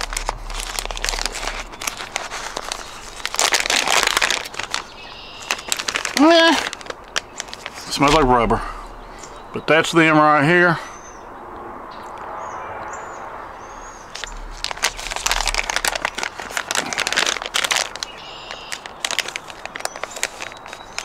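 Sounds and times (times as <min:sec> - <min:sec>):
plastic packaging crinkling: 0:00.0 - 0:08.7, 0:14.1 - 0:21.0.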